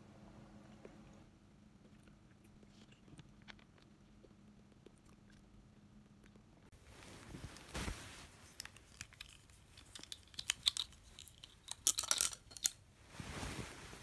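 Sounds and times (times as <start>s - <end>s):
bedding rustling: 6.7s - 9.0s, 13.0s - 14.0s.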